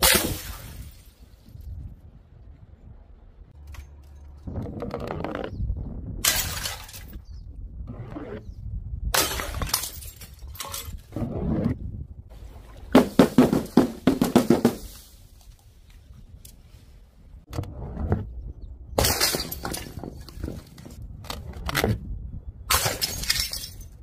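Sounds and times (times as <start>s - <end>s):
glass jars shattering: 6.2s - 7.2s, 9.2s - 11.0s, 19.0s - 20.5s, 22.7s - 24.0s
glass shards clattering: 6.3s - 7.2s, 9.2s - 11.0s, 19.0s - 20.5s, 22.7s - 24.0s.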